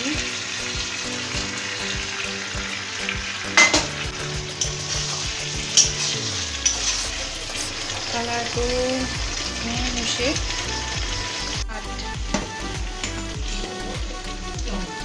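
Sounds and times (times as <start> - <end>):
meat sizzling in a pan: 0.0 - 15.0
utensils clacking against pan: 3.0 - 7.6, 12.2 - 14.8.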